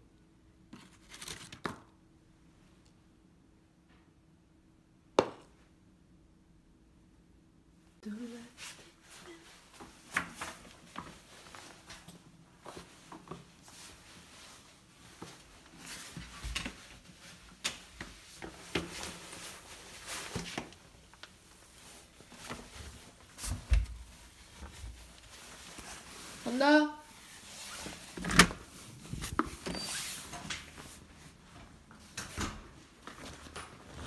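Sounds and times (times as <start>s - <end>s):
rustling and footsteps: 8.5s - 34.0s.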